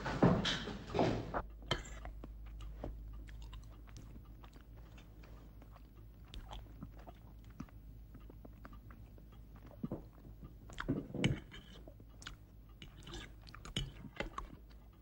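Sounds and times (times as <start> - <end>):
low steady hum: 0.0 - 15.0
man chewing: 1.4 - 15.0.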